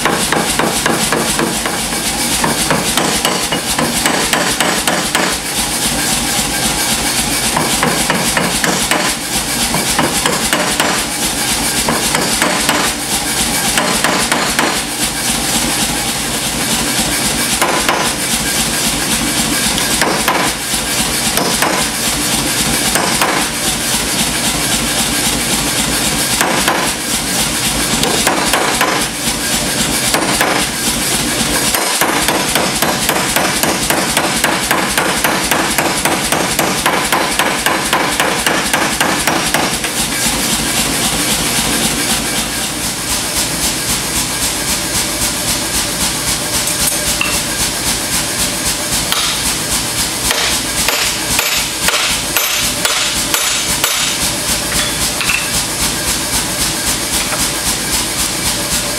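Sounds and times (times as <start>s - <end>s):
hammer striking iron on anvil: 0.0s - 5.4s, 7.5s - 11.1s, 11.8s - 13.0s, 13.7s - 14.9s, 17.5s - 18.3s, 19.7s - 20.6s, 21.3s - 21.9s, 22.9s - 23.6s, 26.4s - 27.0s, 28.0s - 29.1s, 30.1s - 30.7s, 31.6s - 39.8s, 46.7s - 47.6s, 49.1s - 49.5s, 50.2s - 55.6s.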